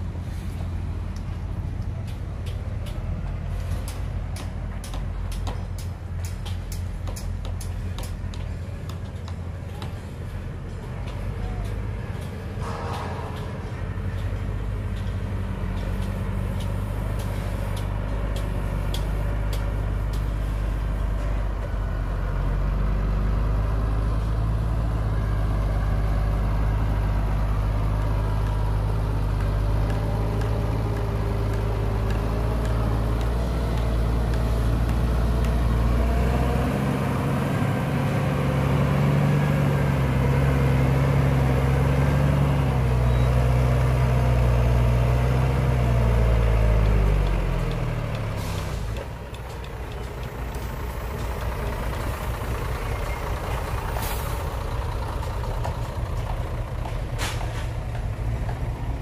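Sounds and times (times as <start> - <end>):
truck diesel engine pulling: 0.0 - 59.0.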